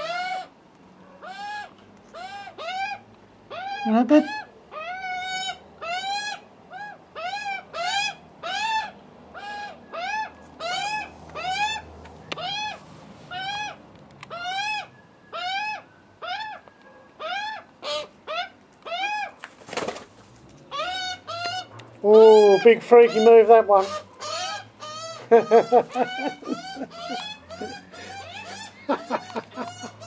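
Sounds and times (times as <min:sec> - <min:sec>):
young magpies squawking: 0:00.0 - 0:00.6, 0:01.2 - 0:19.4, 0:20.7 - 0:30.0
bird wings flapping: 0:19.4 - 0:20.6.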